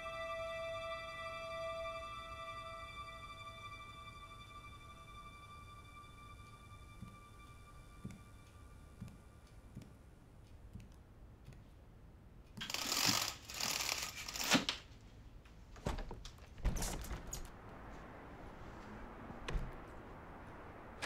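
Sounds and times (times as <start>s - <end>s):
footsteps on wooden floor: 9.0s - 10.0s
venetian blind slats rattling: 12.7s - 14.8s.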